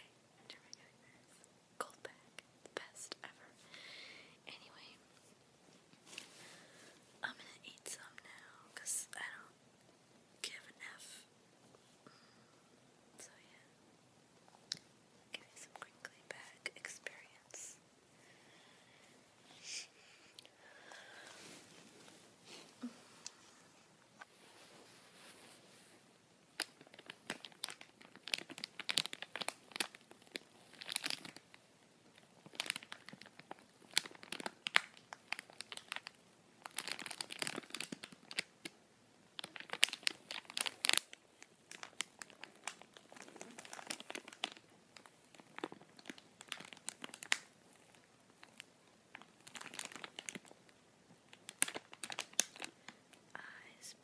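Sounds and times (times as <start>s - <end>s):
plastic bag crumpling: 26.6s - 38.5s, 39.4s - 50.6s, 51.3s - 52.9s.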